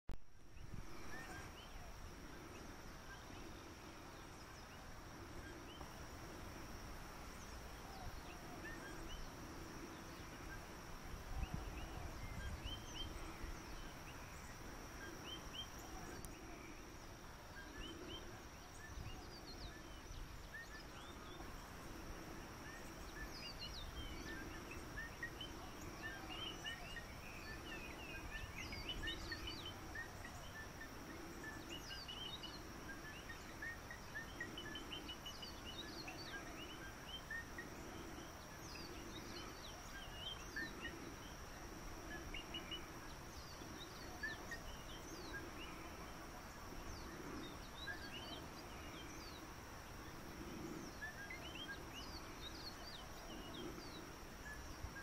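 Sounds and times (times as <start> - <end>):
wind rumble on microphone: 0.2 - 30.6
bird chirps: 7.2 - 55.0.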